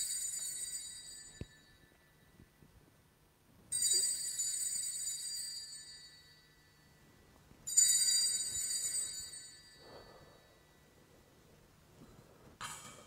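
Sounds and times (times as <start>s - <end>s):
altar bell ringing: 0.0s - 2.4s, 3.7s - 11.0s.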